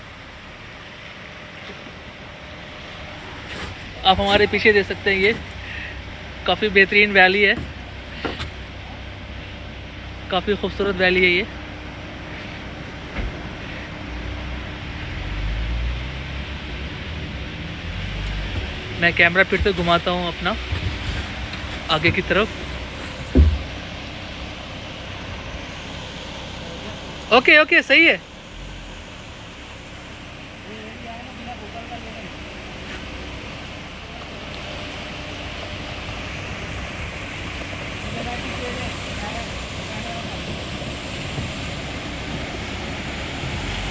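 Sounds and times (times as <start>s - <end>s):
engine and tyre rumble: 0.0s - 43.9s
vehicle knock: 7.4s - 8.6s, 22.0s - 23.8s.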